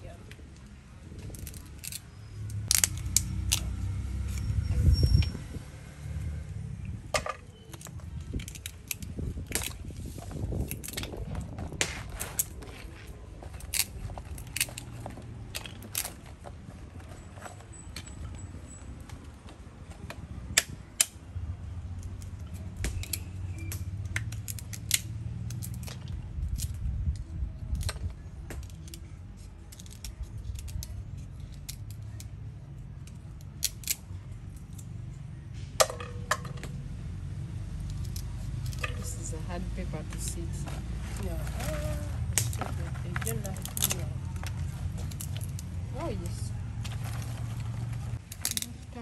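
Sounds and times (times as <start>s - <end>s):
nut husks clicking and snapping: 1.2s - 3.8s, 7.5s - 9.9s, 10.5s - 16.3s, 22.0s - 34.9s, 41.6s - 46.1s, 48.2s - 48.9s.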